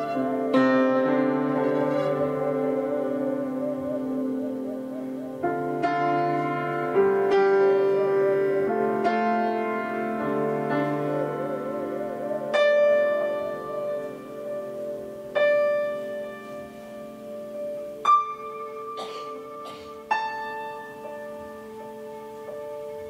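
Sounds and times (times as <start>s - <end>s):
bowed string instrument: 0.0s - 23.0s
piano notes and chords: 0.0s - 23.0s.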